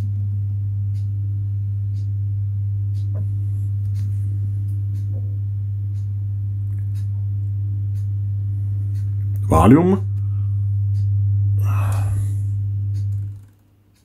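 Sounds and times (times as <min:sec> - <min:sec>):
low sine test tone: 0:00.0 - 0:13.5
faint ticks: 0:01.9 - 0:02.1, 0:07.9 - 0:08.1, 0:10.9 - 0:11.2, 0:12.9 - 0:14.0.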